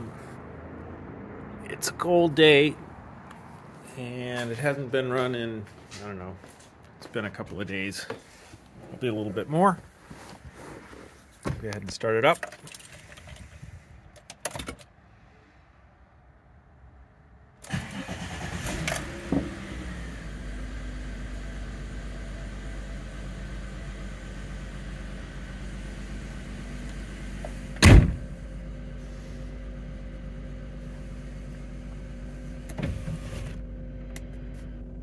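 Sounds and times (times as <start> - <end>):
engine cranking and idling: 17.6 - 32.8
loud thump: 27.8 - 28.3.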